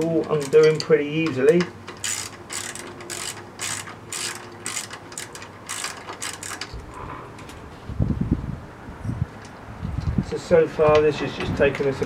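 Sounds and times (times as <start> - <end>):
ratchet wrench clicking: 0.0 - 7.0.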